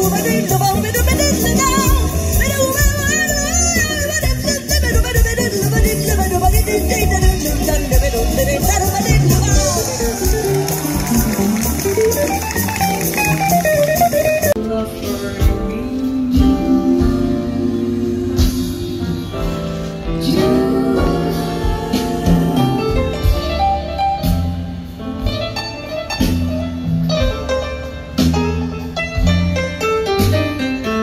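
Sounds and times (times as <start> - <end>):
bass notes: 0.0 - 31.0
jazz band playing: 0.0 - 31.0
person singing: 20.1 - 23.4.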